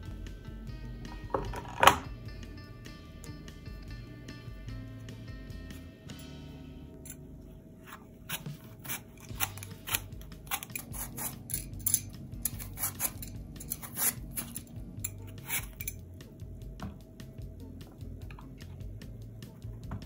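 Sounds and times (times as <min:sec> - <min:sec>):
vegetable peeler scraping apple skin: 0:07.8 - 0:16.0.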